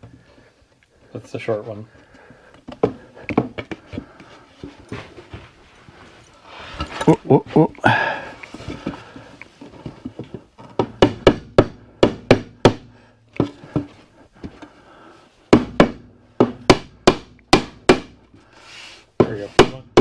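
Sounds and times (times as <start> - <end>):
mallet knocking wooden boards: 10.7 - 13.9, 15.5 - 18.2, 19.2 - 20.0.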